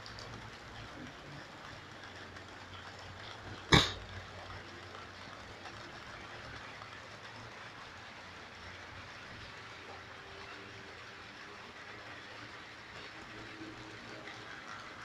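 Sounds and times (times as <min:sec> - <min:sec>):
loud sudden sharp sound: 0:03.7 - 0:04.0.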